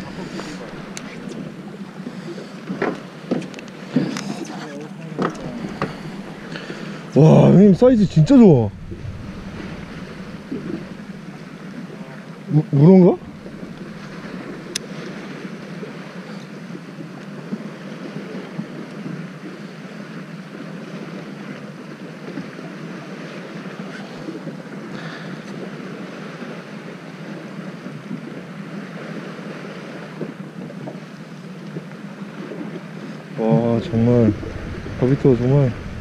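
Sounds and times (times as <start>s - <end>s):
boat engine humming: 0.0s - 18.3s, 31.0s - 36.0s
water noise: 0.0s - 36.0s
wind: 0.0s - 36.0s.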